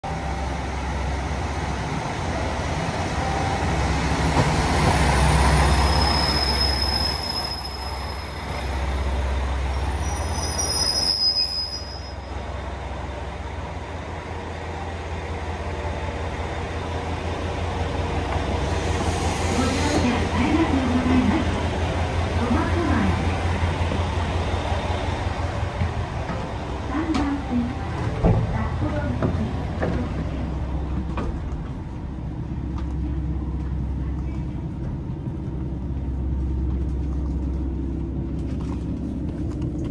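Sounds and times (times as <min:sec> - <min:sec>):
diesel train engine drone: 0:00.0 - 0:39.9
train brakes squealing: 0:04.9 - 0:12.5.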